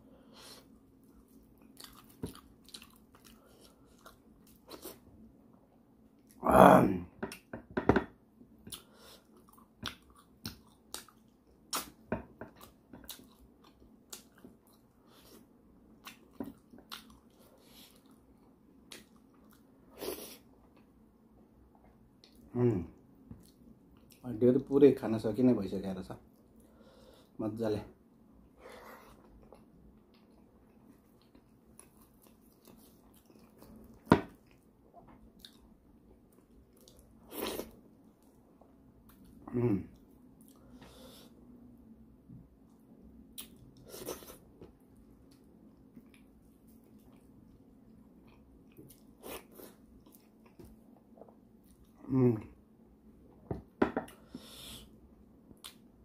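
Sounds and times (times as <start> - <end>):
person chewing wetly: 1.1 - 5.0, 8.7 - 15.3, 15.9 - 19.7, 29.2 - 35.7, 45.2 - 52.0.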